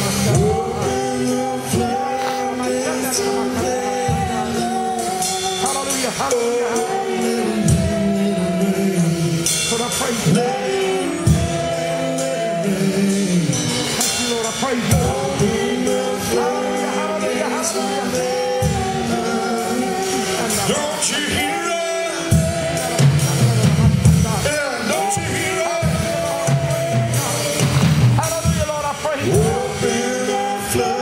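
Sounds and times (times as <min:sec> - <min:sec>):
electric bass: 0:00.0 - 0:20.8, 0:25.2 - 0:31.0
drums: 0:00.0 - 0:31.0
keyboard: 0:00.0 - 0:31.0
voices singing held notes: 0:00.0 - 0:31.0.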